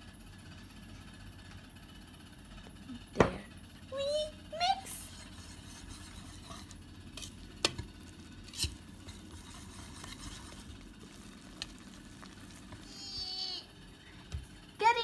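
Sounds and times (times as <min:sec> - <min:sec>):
whisk scraping bowl: 0:05.0 - 0:13.4
whisk clicking on bowl: 0:05.2 - 0:12.9.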